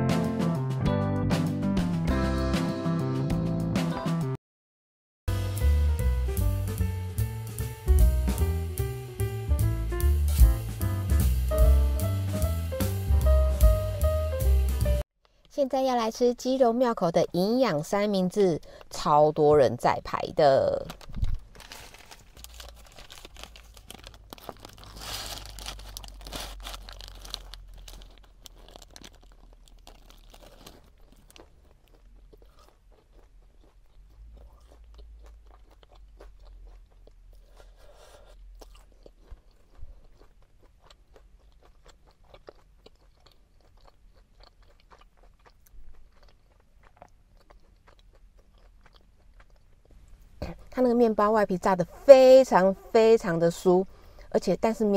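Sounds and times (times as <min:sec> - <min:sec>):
paper wrapper rustling: 0:20.8 - 0:31.0
crunchy biting and chewing: 0:21.6 - 0:50.1.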